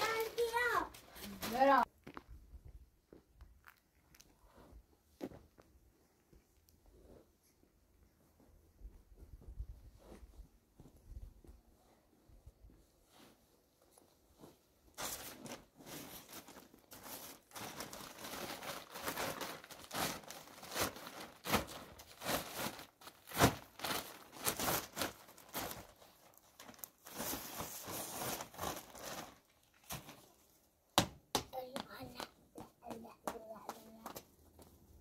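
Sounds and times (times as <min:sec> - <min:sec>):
plastic bag rustling and crinkling: 0:00.0 - 0:01.9, 0:14.2 - 0:30.6.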